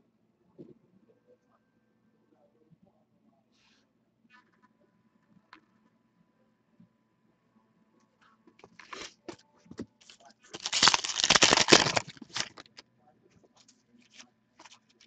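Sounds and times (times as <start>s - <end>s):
wrapper crinkling and rustling: 10.1s - 12.8s, 14.0s - 14.9s
card pack wrapper tearing: 10.6s - 12.8s, 14.1s - 14.8s.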